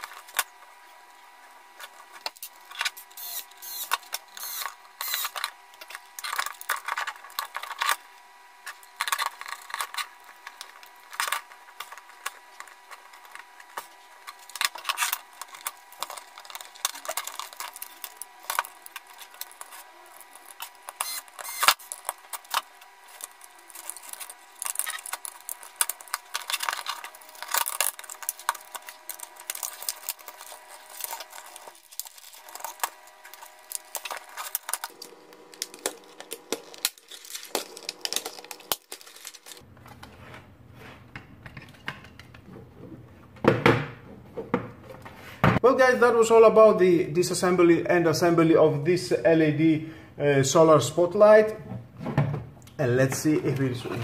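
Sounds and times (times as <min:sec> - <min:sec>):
plastic parts clicking and rattling: 0:02.2 - 0:08.0, 0:08.7 - 0:40.0.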